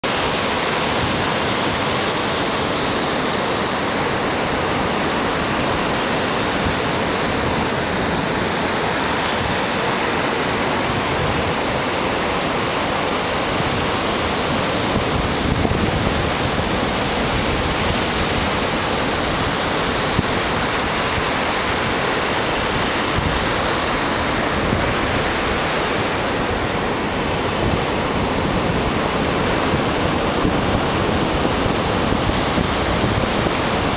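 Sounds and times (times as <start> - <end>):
surf breaking on sand: 0.0 - 33.9.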